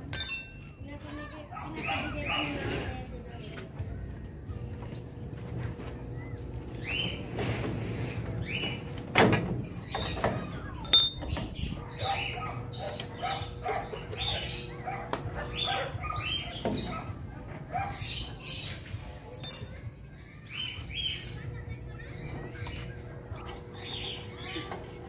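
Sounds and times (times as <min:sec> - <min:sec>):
metal tools clinking: 0:00.0 - 0:01.1, 0:10.8 - 0:11.6, 0:19.4 - 0:20.1
sharp ringing clink: 0:00.0 - 0:01.1, 0:10.9 - 0:11.5, 0:19.4 - 0:20.1.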